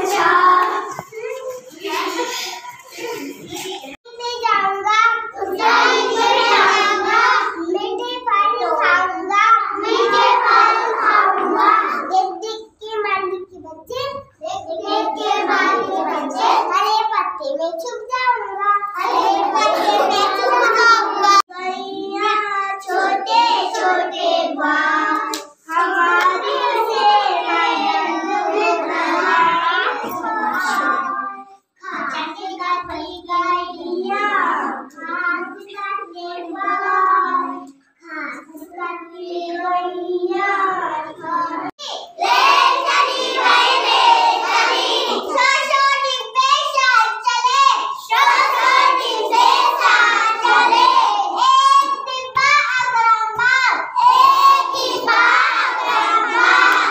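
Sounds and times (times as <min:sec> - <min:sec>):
children singing unaccompanied: 0:00.0 - 0:56.9.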